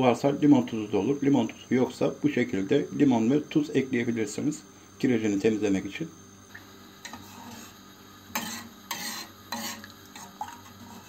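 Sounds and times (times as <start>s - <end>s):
metal spoon scraping a kettle: 7.0s - 11.0s.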